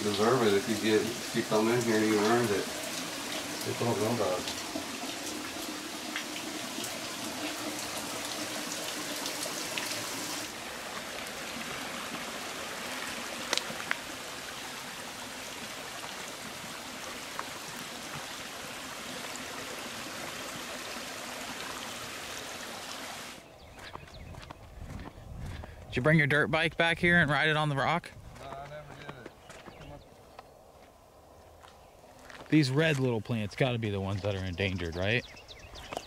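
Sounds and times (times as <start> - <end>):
stream trickling over rock: 0.0 - 23.4.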